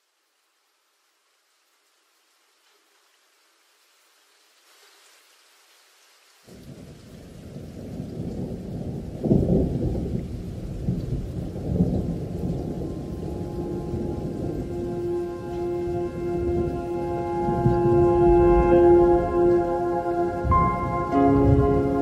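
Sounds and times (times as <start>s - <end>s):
thunder rumbling: 6.6s - 22.0s.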